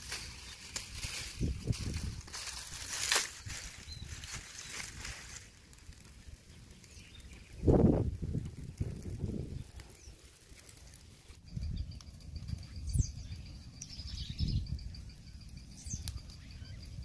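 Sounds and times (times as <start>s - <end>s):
campfire crackling: 0.0s - 17.0s
birds chirping: 3.0s - 5.2s, 6.4s - 7.9s, 9.4s - 10.3s, 11.2s - 17.0s.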